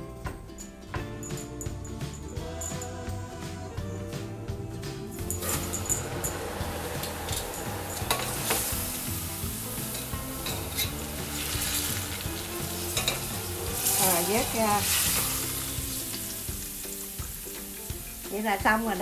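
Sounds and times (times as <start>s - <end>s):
noodles sizzling in hot oil: 5.3s - 19.0s
metal tongs clicking on pot: 13.0s - 14.3s.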